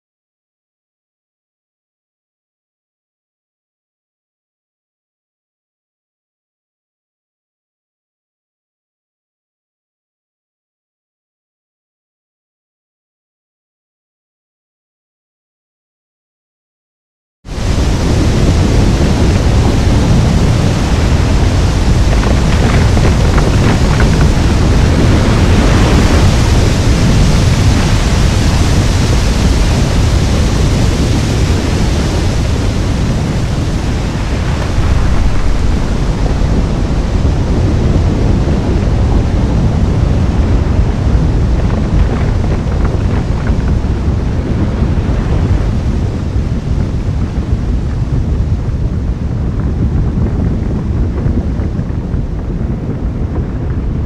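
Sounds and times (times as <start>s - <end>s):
loud low rumbling: 17.5s - 51.3s.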